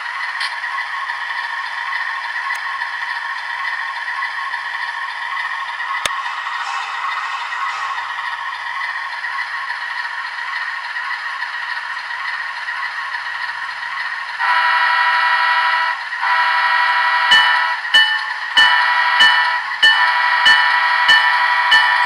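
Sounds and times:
diesel locomotive running: 0:00.0 - 0:22.0
locomotive bell ringing: 0:06.1 - 0:09.2, 0:17.2 - 0:22.0
locomotive horn blasts: 0:14.4 - 0:17.8, 0:18.6 - 0:21.1.

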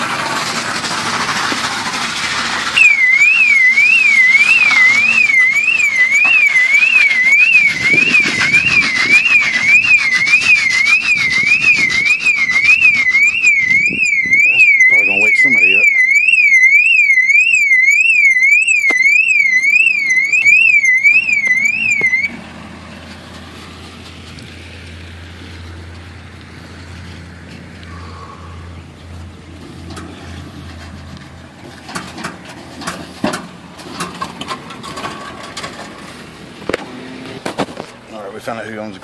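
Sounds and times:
knocks and clatters: 0:00.0 - 0:02.7, 0:29.8 - 0:38.0
car alarm siren warbling: 0:02.7 - 0:22.4
low engine hum: 0:18.8 - 0:38.8.

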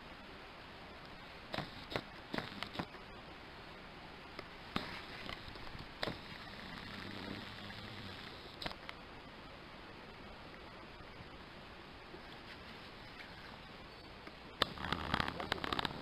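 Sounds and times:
background hiss: 0:00.0 - 0:16.0
sharp clicks and snaps: 0:01.0 - 0:03.0, 0:08.6 - 0:09.0, 0:14.2 - 0:16.0.

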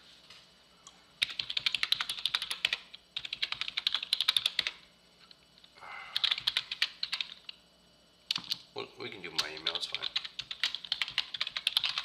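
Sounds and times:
fast typing on keyboard: 0:01.2 - 0:04.8, 0:06.1 - 0:07.6, 0:08.3 - 0:08.6, 0:09.3 - 0:12.0.

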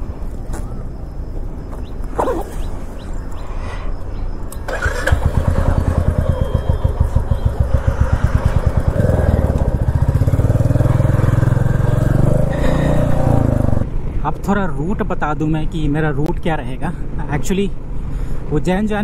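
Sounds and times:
motorcycle engine pulling away: 0:04.6 - 0:13.9.

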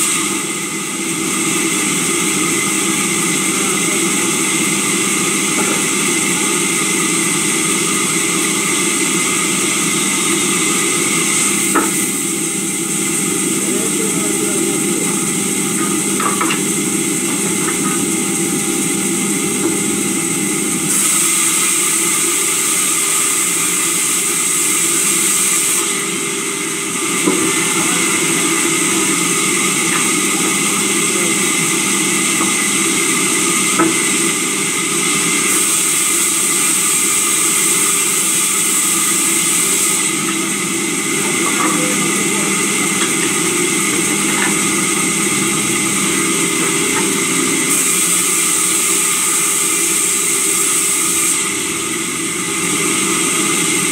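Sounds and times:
sawmill saw running: 0:00.0 - 0:53.9
saw hissing while cutting: 0:20.8 - 0:26.2, 0:26.9 - 0:40.2, 0:46.6 - 0:51.7.

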